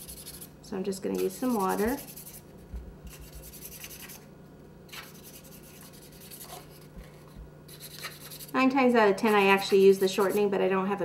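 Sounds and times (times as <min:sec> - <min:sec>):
steady low hum: 0:00.0 - 0:11.0
paintbrush brushing on cardboard: 0:09.2 - 0:10.5.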